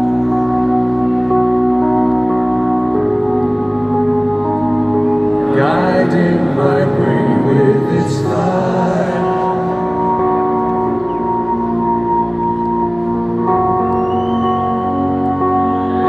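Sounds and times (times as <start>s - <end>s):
sustained keyboard chords: 0.0s - 16.0s
men singing: 5.5s - 9.9s.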